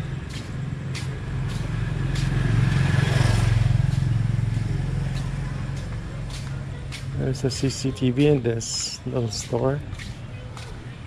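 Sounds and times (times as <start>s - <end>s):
vehicle engine passing by: 0.0s - 10.0s.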